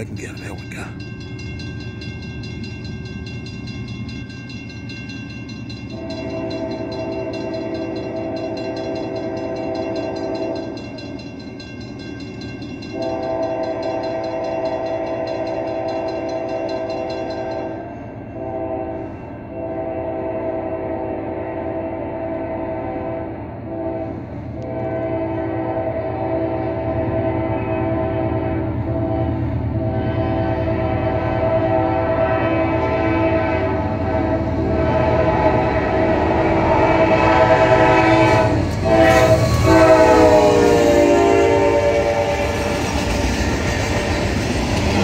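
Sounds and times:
low train rumble: 0.0 - 45.0
locomotive air horn blasts: 5.9 - 10.8, 12.9 - 16.2, 17.4 - 42.7.

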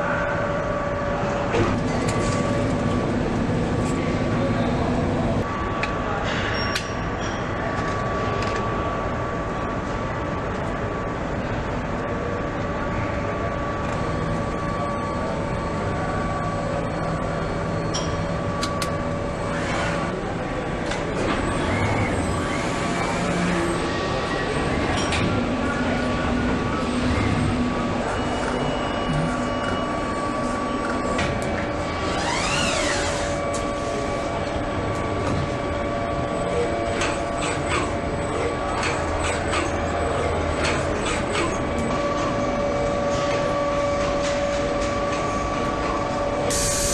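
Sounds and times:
factory machinery hum and hiss: 0.0 - 46.9
motor whine: 26.8 - 33.6.

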